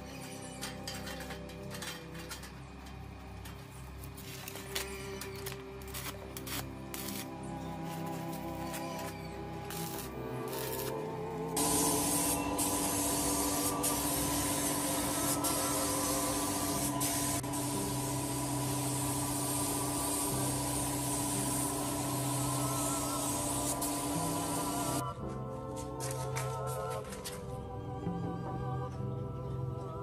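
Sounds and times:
background music: 0.0s - 30.0s
paint spray gun hissing: 11.6s - 25.0s.

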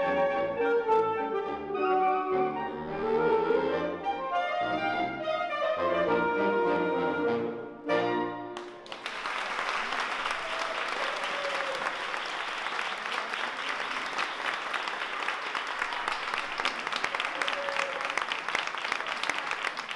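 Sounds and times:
audience clapping: 8.6s - 19.9s.

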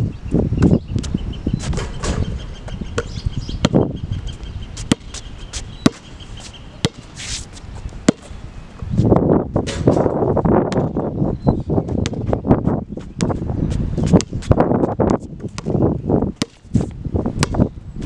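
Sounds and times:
basketball bouncing on hard court: 1.7s - 3.9s, 4.8s - 5.2s, 5.8s - 6.1s, 6.8s - 7.1s, 8.1s - 8.3s, 10.7s - 11.0s, 11.9s - 12.4s, 13.2s - 13.4s, 14.0s - 15.8s, 16.4s - 16.7s, 17.4s - 17.7s.

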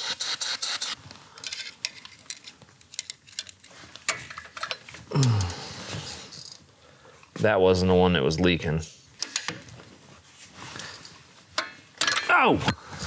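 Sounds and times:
metal tools clinking on engine: 12.0s - 12.4s.

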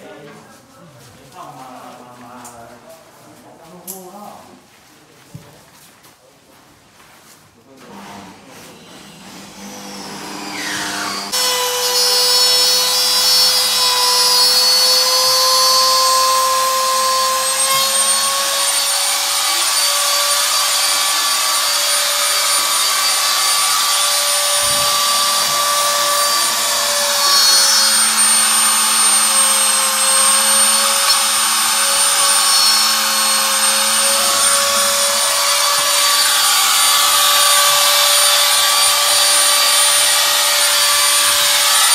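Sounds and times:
electric drill whining: 9.5s - 41.9s.

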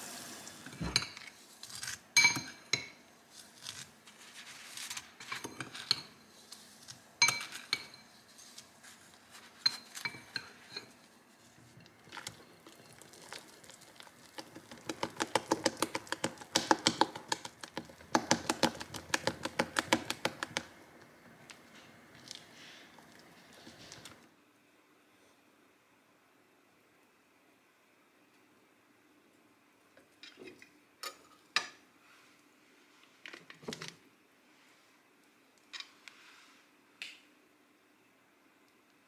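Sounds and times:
spatula folding cream in bowl: 3.3s - 20.7s
metal spoon clinking on glass bowl: 7.2s - 8.1s.

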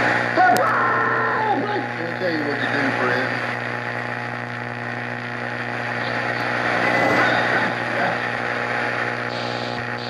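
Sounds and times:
low hum: 0.0s - 10.0s
radio static hiss: 0.0s - 10.0s
faint voice on radio: 0.3s - 0.8s, 1.4s - 3.6s, 7.7s - 8.6s.

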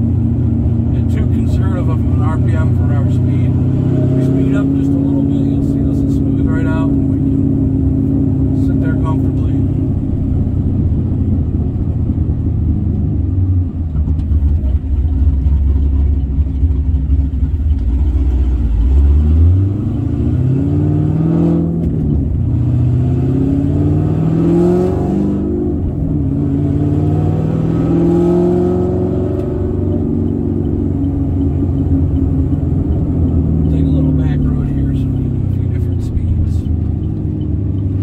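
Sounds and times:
car engine rumbling and revving: 0.0s - 38.0s.

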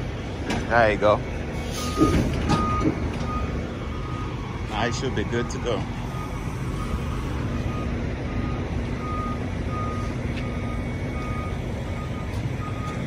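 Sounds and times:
diesel engine running: 0.0s - 13.0s
reversing alarm beeping: 1.7s - 13.0s.

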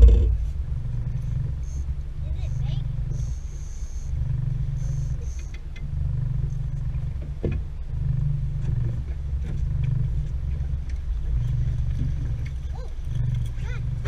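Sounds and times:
outboard motor rumbling: 0.0s - 14.0s.

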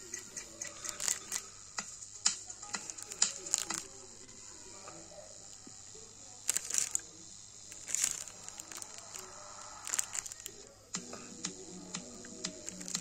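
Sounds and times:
steady high hiss: 0.0s - 13.0s
loudspeaker scratchy crackle: 0.8s - 1.5s, 2.6s - 4.3s, 6.4s - 10.7s, 12.4s - 13.0s.

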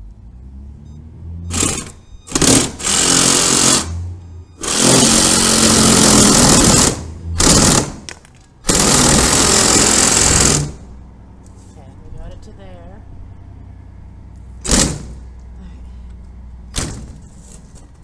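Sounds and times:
battery saw cutting wood: 1.5s - 8.0s, 8.7s - 10.8s.

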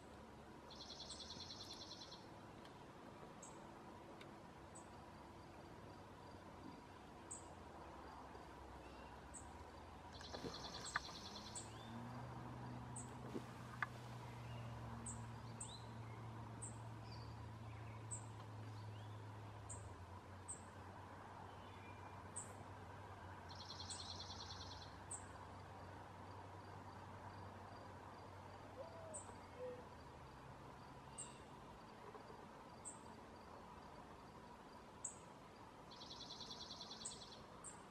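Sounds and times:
small birds chirping: 0.0s - 3.7s, 6.2s - 12.2s, 12.9s - 20.8s, 23.5s - 25.4s, 31.0s - 33.2s, 35.9s - 37.9s
low steady hiss: 0.0s - 37.9s
faint ticks: 2.6s - 2.8s, 4.2s - 4.4s, 9.6s - 11.6s, 13.0s - 14.0s, 18.2s - 18.6s
bird trill: 10.2s - 11.9s.

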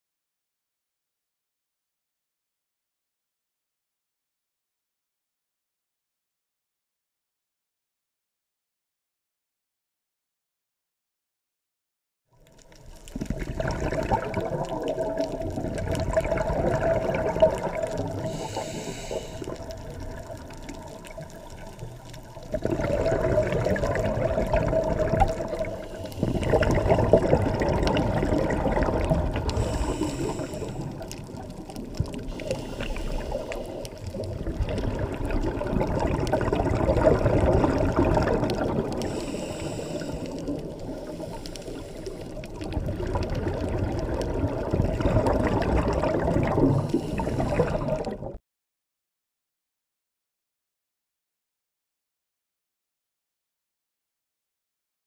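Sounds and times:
bubbling exhaled air underwater: 12.4s - 48.4s
hissing inhalations: 18.2s - 19.9s, 25.6s - 27.1s, 29.4s - 31.3s, 32.1s - 34.2s, 39.0s - 42.5s, 46.7s - 48.0s.

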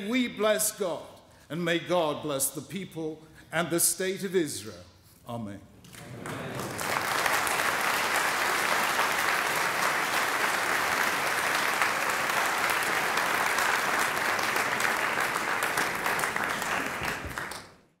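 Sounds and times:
audience applauding: 5.9s - 17.9s.

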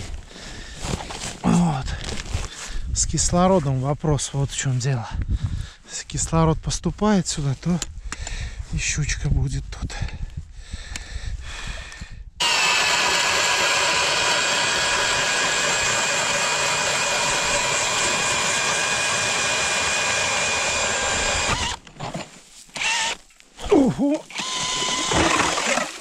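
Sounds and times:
ice auger motor whine: 12.4s - 22.2s, 22.8s - 23.2s, 24.3s - 26.0s.

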